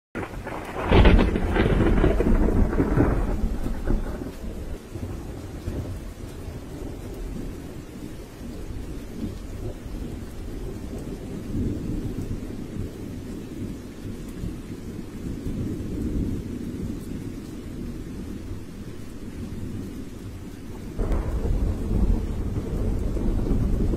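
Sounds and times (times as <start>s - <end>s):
storm rushing: 0.2s - 5.9s, 20.8s - 23.9s
thunder clap rolling: 0.2s - 5.9s, 20.9s - 23.9s.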